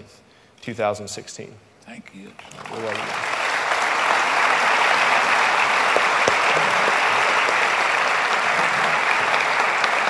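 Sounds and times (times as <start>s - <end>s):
congregation applauding: 2.3s - 10.0s.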